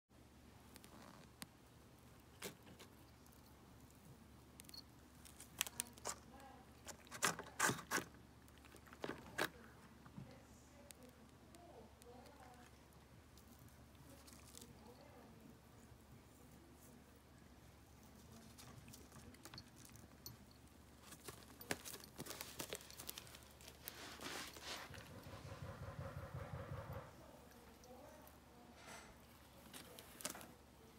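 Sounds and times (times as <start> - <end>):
cat chewing pizza: 0.9 - 15.9, 17.7 - 26.7
cardboard crackling: 21.0 - 25.1.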